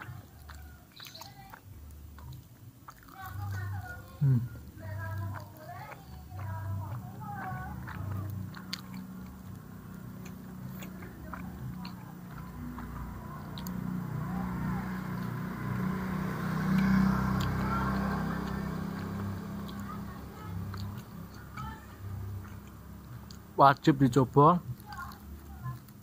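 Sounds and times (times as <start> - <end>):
mouth clicks: 0.0 - 23.9
man chewing food: 0.0 - 26.0.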